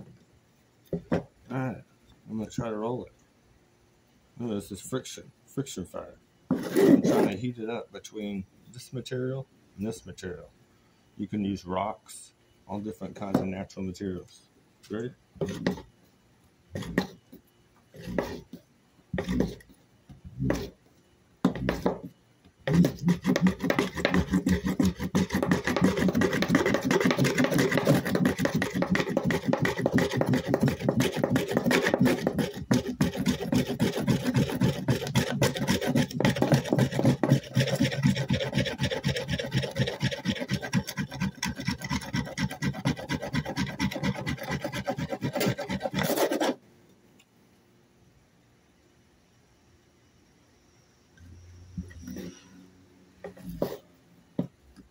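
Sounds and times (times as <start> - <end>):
dry rasping rub of wood on cotton: 18.0 - 18.6, 19.2 - 19.6, 22.7 - 46.6.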